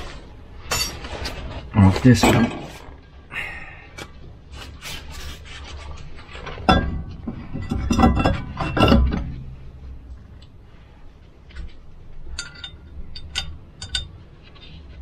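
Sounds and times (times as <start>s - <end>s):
metal rubbing and clinking: 0.0s - 3.1s, 5.0s - 9.8s, 11.6s - 15.0s.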